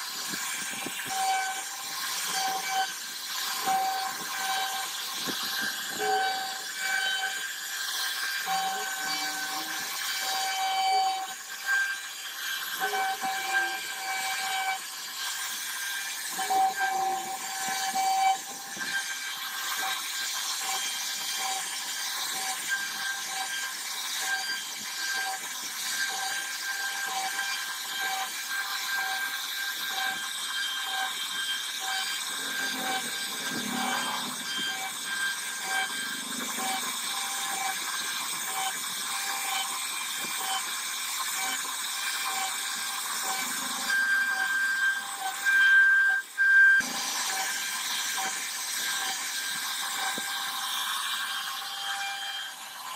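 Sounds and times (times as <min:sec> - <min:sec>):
router spindle high whine: 0:00.0 - 0:52.9.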